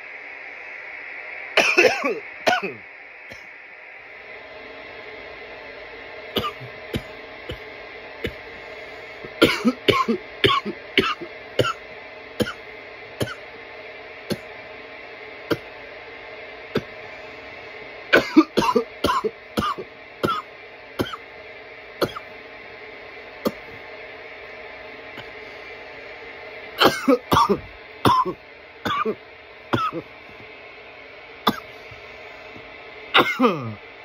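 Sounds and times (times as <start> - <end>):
steady background hum: 0.0 - 34.0
man coughing: 1.6 - 3.4, 6.4 - 7.1, 9.4 - 11.8, 18.2 - 21.2, 22.0 - 22.2, 26.8 - 29.2, 29.8 - 30.1, 31.5 - 31.8, 33.2 - 33.8.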